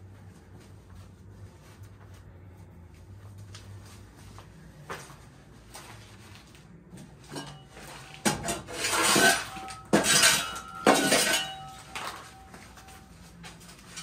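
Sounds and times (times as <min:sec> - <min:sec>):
metal clanking and scraping: 0:07.2 - 0:14.0.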